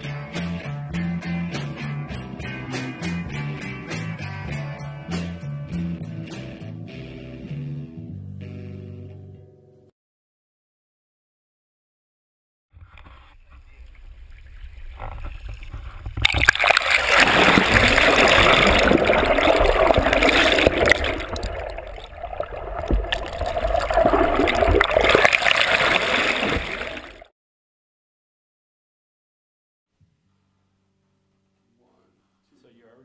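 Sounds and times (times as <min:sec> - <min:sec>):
water rushing and gurgling: 0:13.9 - 0:27.3.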